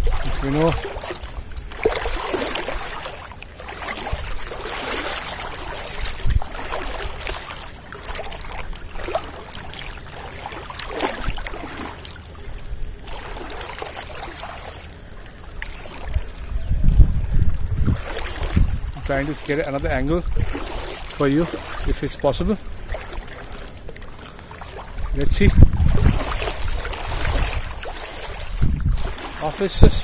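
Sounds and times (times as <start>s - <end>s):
floodwater sloshing and splashing: 0.0s - 30.0s.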